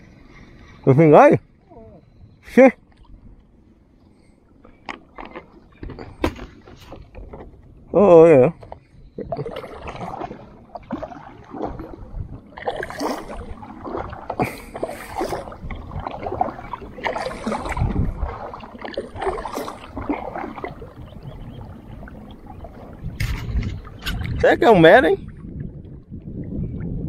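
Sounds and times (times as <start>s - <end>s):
kayak paddle dipping into water: 4.6s - 7.7s, 8.6s - 24.4s
water splashing and dripping: 9.3s - 27.0s.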